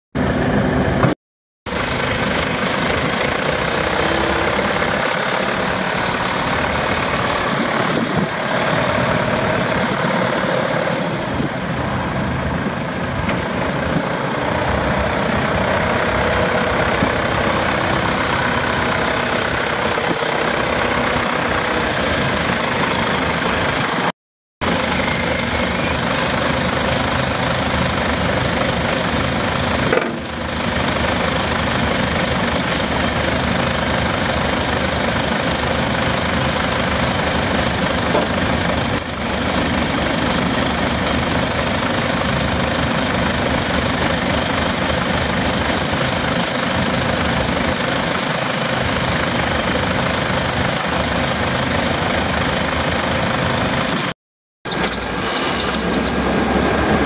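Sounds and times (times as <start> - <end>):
tractor diesel engine running: 0.2 - 54.1, 54.7 - 57.0.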